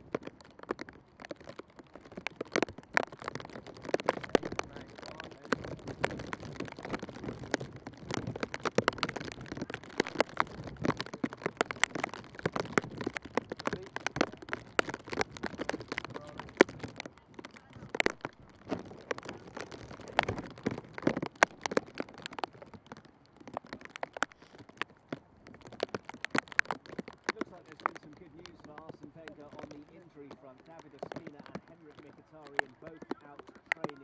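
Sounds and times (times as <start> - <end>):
footsteps jogging on grass: 0.0 - 23.5
faint voices: 2.4 - 21.0, 27.2 - 34.0.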